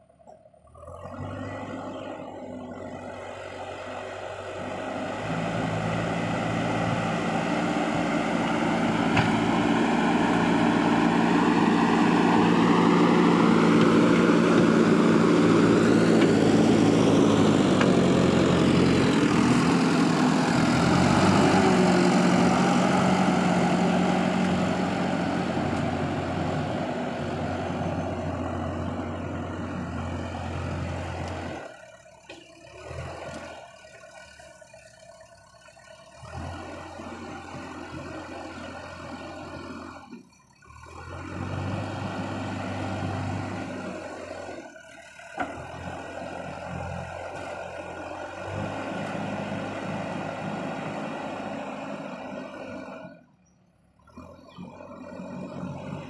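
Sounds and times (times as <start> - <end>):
diesel backhoe engine running: 0.0 - 56.0.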